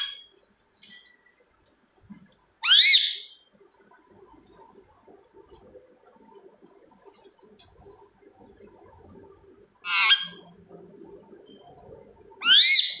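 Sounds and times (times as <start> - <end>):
parrot screeching: 2.6 - 3.3, 9.8 - 10.4, 12.4 - 13.0.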